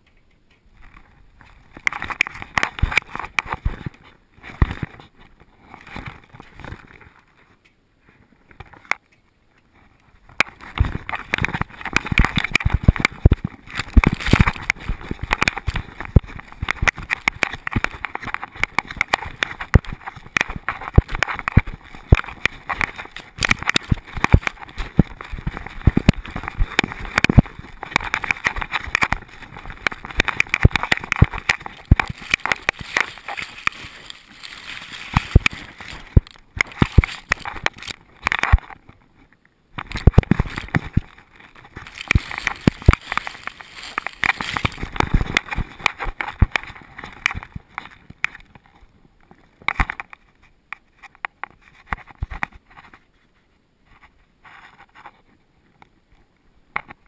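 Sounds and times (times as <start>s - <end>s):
camera rubbing against dog fur: 10.6s - 38.7s, 39.8s - 47.5s.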